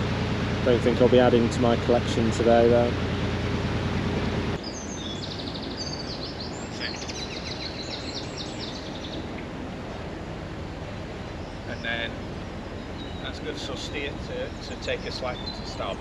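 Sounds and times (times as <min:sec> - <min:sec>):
boat engine humming: 0:00.0 - 0:16.0
faint outdoor background noise: 0:00.0 - 0:16.0
small bird chirping and trilling: 0:04.6 - 0:09.4, 0:11.3 - 0:16.0.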